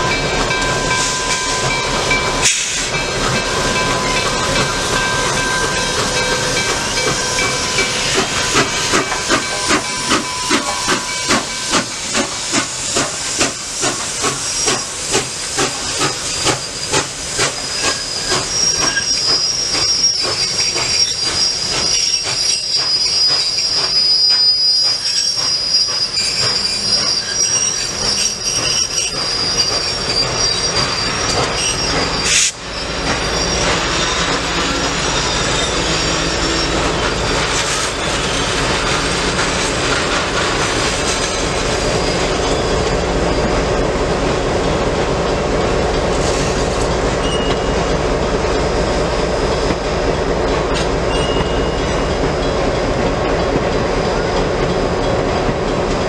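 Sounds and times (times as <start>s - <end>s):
high wheel squeal: 0.0s - 39.7s, 40.8s - 43.5s, 46.2s - 48.0s
steam locomotive exhaust chuffs: 0.0s - 56.0s
hiss of steam: 0.8s - 1.6s, 2.4s - 4.9s, 5.9s - 43.2s.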